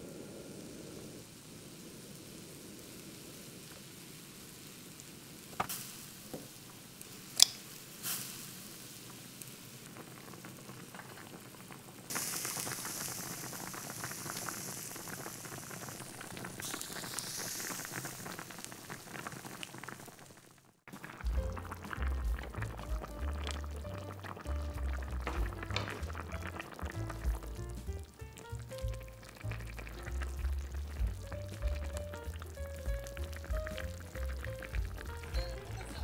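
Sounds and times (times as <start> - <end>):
stew bubbling and sizzling in pot: 0.0 - 36.0
sharp taps and knocks: 25.2 - 26.3.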